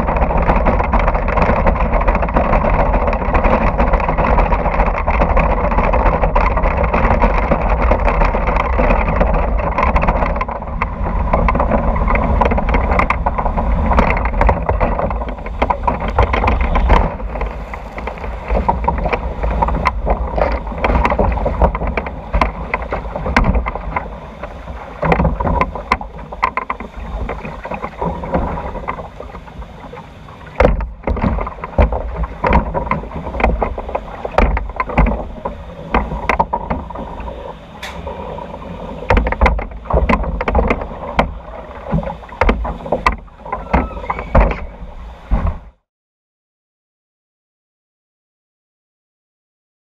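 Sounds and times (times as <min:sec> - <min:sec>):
log boat knocking: 0:00.0 - 0:45.8
rushing water: 0:00.0 - 0:45.8
wind on microphone: 0:00.0 - 0:45.8.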